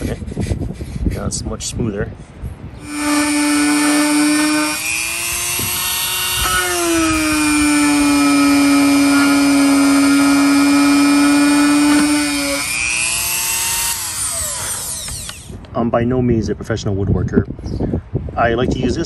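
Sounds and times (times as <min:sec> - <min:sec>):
rotary tool high whine: 0:02.8 - 0:15.6.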